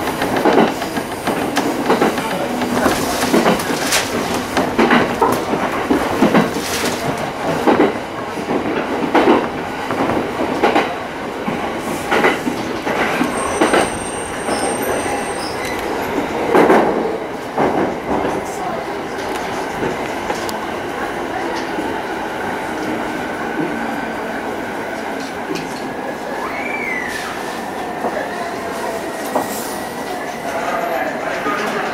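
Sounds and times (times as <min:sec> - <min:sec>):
train wheels clacking over rail joints: 0:00.0 - 0:18.4
faint high whistle: 0:26.3 - 0:27.5.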